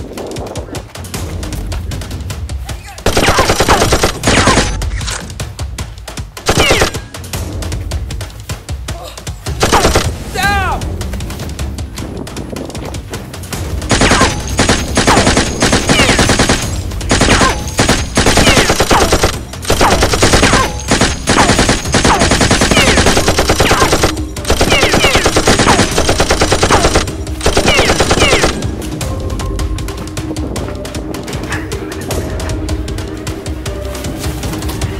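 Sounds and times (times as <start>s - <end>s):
automatic gunfire sound effect: 3.0s - 4.8s, 6.4s - 7.0s, 9.6s - 10.2s, 13.9s - 28.6s.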